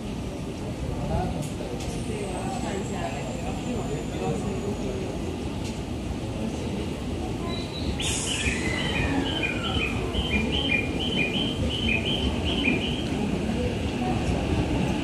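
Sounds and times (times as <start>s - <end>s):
train rumbling at platform: 0.0s - 15.0s
sharp hiss: 8.0s - 8.7s.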